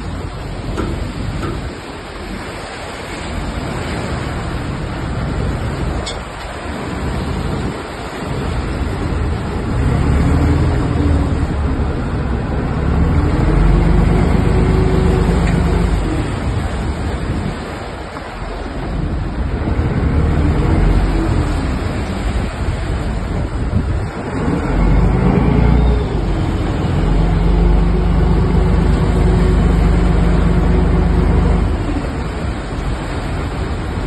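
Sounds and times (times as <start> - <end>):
surf breaking against boat: 0.0 - 34.0
wind buffeting microphone: 0.0 - 34.0
low rumble: 7.0 - 17.6, 18.8 - 34.0.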